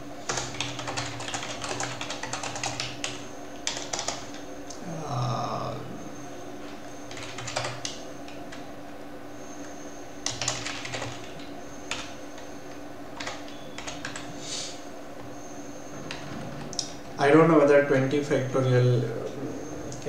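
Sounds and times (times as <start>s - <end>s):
keyboard keystrokes clicking: 13.2s - 14.3s.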